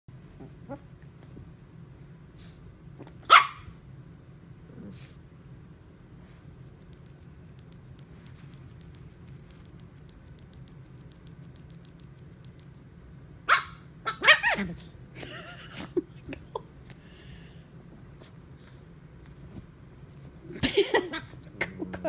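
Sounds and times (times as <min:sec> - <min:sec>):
dog yipping: 0:03.2 - 0:03.7, 0:13.5 - 0:14.7
small dog barking: 0:03.2 - 0:03.8, 0:13.5 - 0:14.8.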